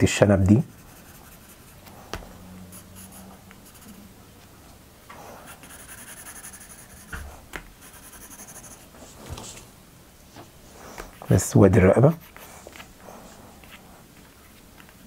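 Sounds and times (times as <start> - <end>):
pencil scratching on paper: 0.6 - 4.1, 5.4 - 9.6.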